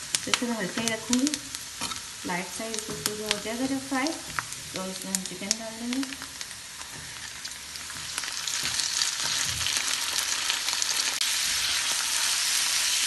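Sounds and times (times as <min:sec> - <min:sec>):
chicken sizzling in a pan: 0:00.0 - 0:13.0
spatula scraping a pan: 0:01.7 - 0:02.2.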